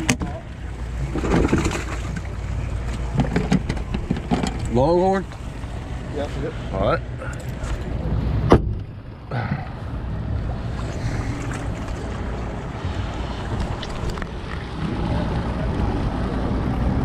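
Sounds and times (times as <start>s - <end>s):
outboard motors running: 0.0s - 17.0s.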